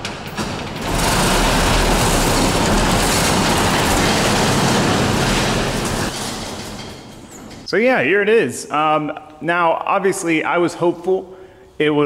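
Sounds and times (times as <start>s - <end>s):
steel roll-up door rattling open: 0.0s - 7.7s.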